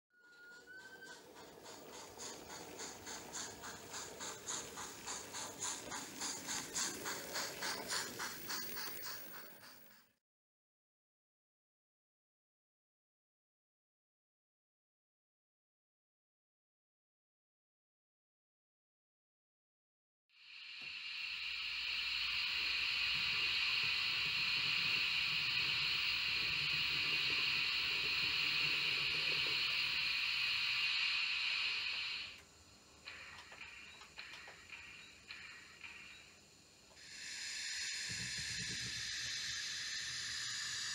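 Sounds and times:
model steam locomotive chuffing: 0:00.2 - 0:10.2, 0:20.5 - 0:40.9.

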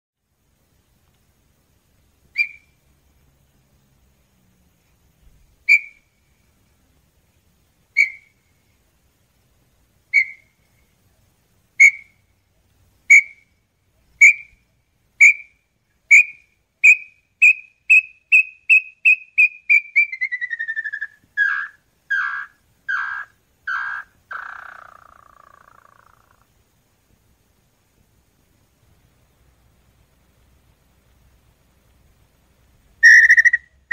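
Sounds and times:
bird whistling song: 0:02.3 - 0:02.8, 0:05.7 - 0:06.2, 0:08.0 - 0:08.5, 0:10.1 - 0:10.8, 0:11.8 - 0:12.2, 0:13.1 - 0:13.5, 0:14.1 - 0:14.6, 0:15.2 - 0:26.3, 0:33.0 - 0:33.9.

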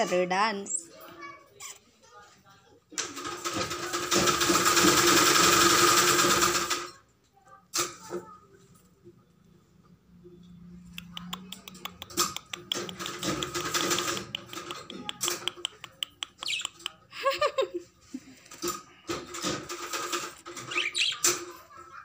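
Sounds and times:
birds clicking and scratching in cage: 0:02.9 - 0:07.0, 0:10.9 - 0:17.0, 0:18.3 - 0:22.0
bird chirps: 0:16.2 - 0:16.9.

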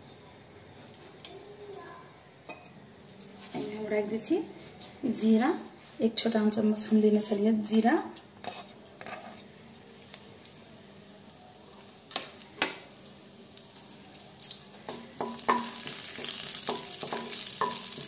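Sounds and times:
seeds sizzling in hot oil: 0:07.2 - 0:18.0
wooden spatula stirring: 0:08.3 - 0:10.2, 0:15.2 - 0:18.0.

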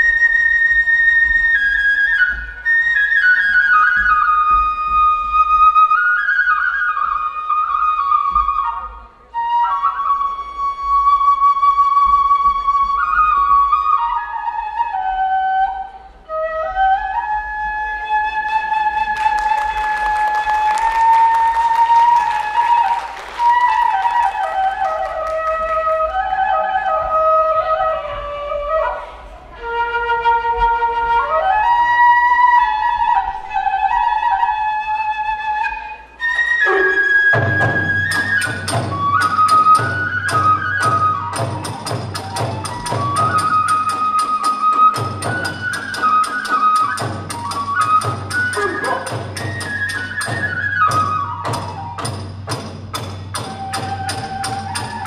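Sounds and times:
bamboo flute melody: 0:00.0 - 0:55.0
drum beats: 0:37.2 - 0:55.0.

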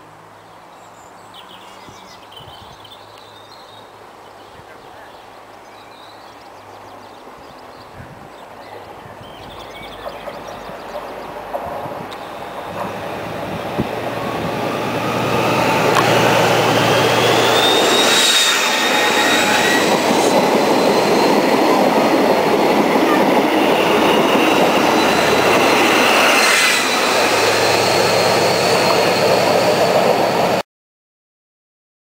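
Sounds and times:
train wheels rushing: 0:08.7 - 0:30.6
high whine: 0:12.0 - 0:30.6.

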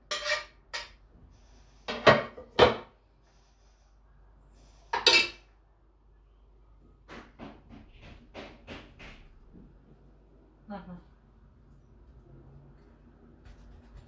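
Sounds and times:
dishes and utensils clattering: 0:05.0 - 0:05.5.

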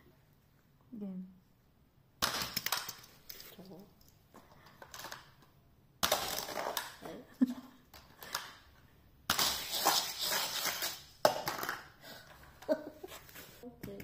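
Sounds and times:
toy cars clattering on track: 0:02.2 - 0:03.5.

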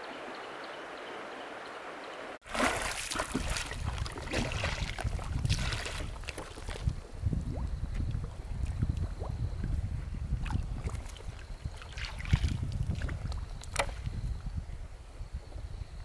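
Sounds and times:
river water trickling: 0:00.0 - 0:14.2
water splashing and lapping: 0:02.4 - 0:14.1
wind rumbling on microphone: 0:02.7 - 0:16.0.

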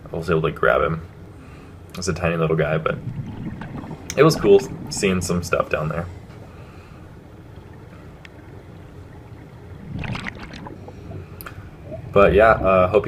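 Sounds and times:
dull underwater rumble: 0:00.7 - 0:13.0
regulator exhaust bubbles: 0:01.9 - 0:13.0.

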